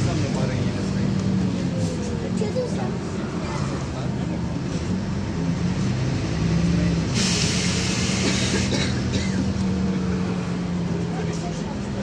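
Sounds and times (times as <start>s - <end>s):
bus engine droning: 0.0s - 12.0s
pneumatic air hiss: 7.1s - 8.7s.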